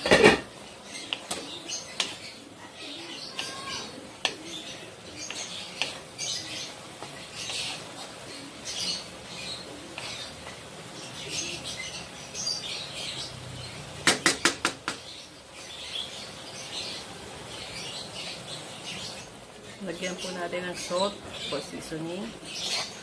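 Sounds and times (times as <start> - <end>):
spatula scraping a wok: 0.0 - 2.4, 3.3 - 8.3, 22.6 - 23.0
sharp knocks: 14.0 - 15.0.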